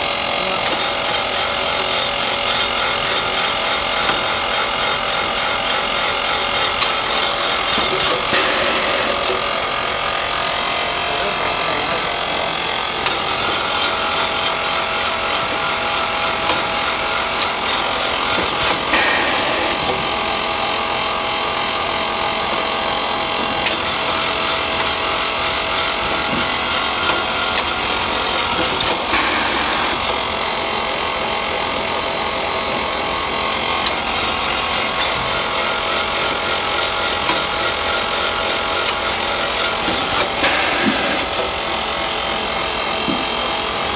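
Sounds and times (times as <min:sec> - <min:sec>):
packing machine running: 0:00.0 - 0:43.9
machine hissing: 0:07.8 - 0:09.5, 0:18.3 - 0:20.3, 0:28.4 - 0:30.2, 0:39.7 - 0:41.5.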